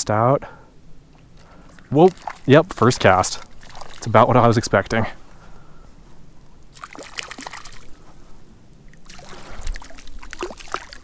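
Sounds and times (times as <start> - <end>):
fish splashing in water: 1.4 - 4.3, 6.7 - 8.0, 8.9 - 11.0.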